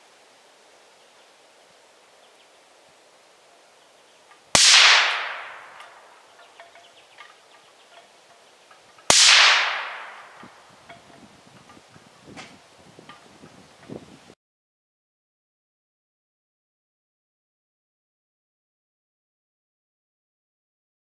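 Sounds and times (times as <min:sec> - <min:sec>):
suppressed rifle shot crack: 0:04.6 - 0:06.1, 0:09.1 - 0:10.5.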